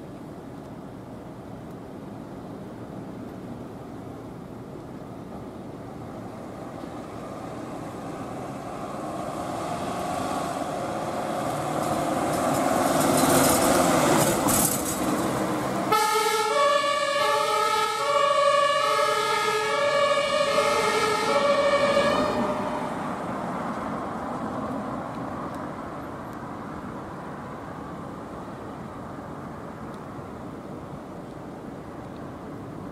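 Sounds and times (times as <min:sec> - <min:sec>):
road noise: 0:00.0 - 0:32.9
ambulance passing by: 0:06.3 - 0:26.2
two-tone siren: 0:15.9 - 0:23.1.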